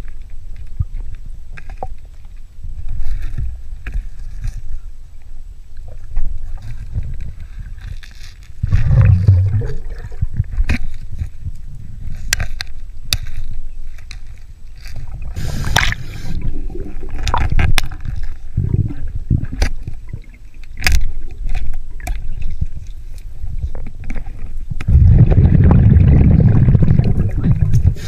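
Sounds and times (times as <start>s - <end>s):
muffled underwater rumble: 0.0s - 28.0s
regulator exhaust bubbles gurgling: 8.6s - 10.7s, 24.8s - 28.0s.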